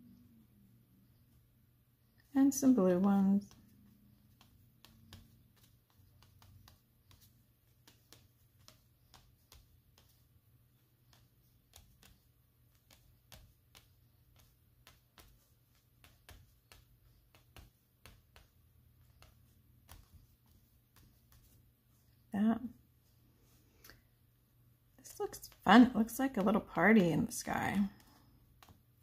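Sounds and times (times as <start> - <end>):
pastel stick tapping on paper: 3.0 - 22.1, 25.3 - 29.0.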